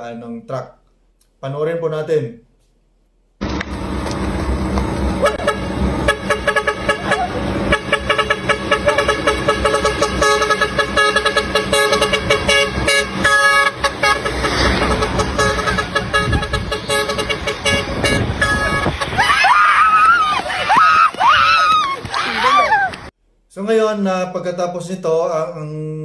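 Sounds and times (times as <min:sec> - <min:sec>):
truck engine passing: 0:03.4 - 0:23.1
truck musical horn tune: 0:05.2 - 0:19.2.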